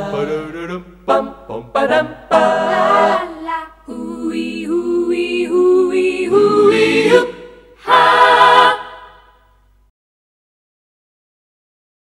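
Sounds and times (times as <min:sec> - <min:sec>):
voices singing jingle in harmony: 0:00.0 - 0:09.4.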